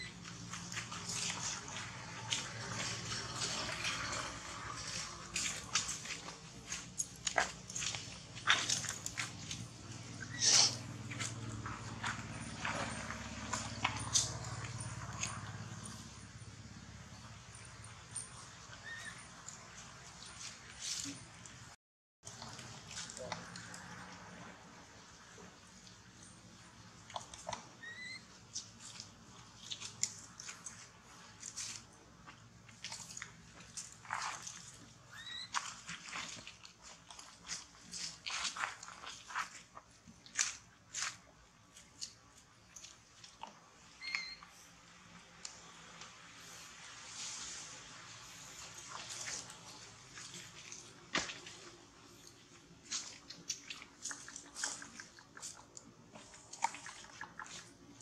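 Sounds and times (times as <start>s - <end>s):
monkeys moving on dry leaves: 0.0s - 16.3s, 17.7s - 21.7s, 27.4s - 43.0s, 44.0s - 58.0s
monkey squeak: 10.2s - 10.8s, 18.8s - 19.4s, 27.7s - 28.3s, 35.1s - 35.5s, 44.0s - 44.5s
crunches on dry leaf litter: 45.4s - 57.9s.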